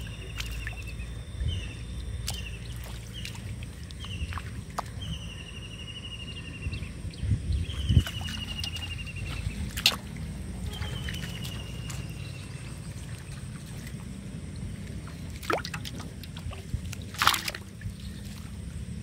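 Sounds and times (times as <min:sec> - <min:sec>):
short sharp splashes: 0:00.0 - 0:01.0, 0:02.2 - 0:05.0, 0:07.8 - 0:14.0, 0:15.0 - 0:18.5
fish splashing in a bucket: 0:00.0 - 0:05.2, 0:07.8 - 0:18.7
steady low rumble: 0:00.0 - 0:19.0.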